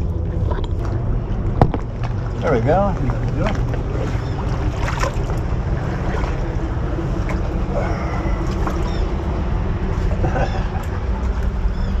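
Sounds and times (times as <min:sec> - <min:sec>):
steady low rumble: 0:00.0 - 0:12.0
water sloshing around kayak hull: 0:00.3 - 0:11.0
high bird calls: 0:08.7 - 0:09.2.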